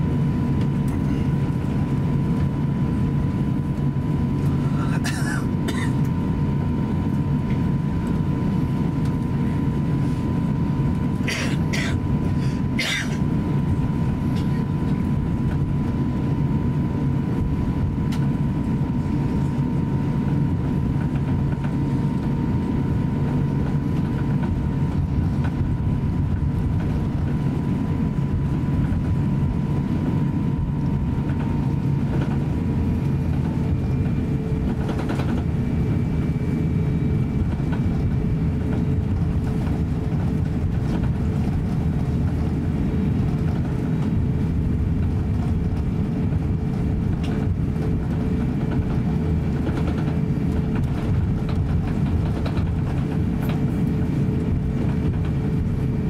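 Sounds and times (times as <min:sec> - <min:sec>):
jet engine low rumble: 0:00.0 - 0:56.0.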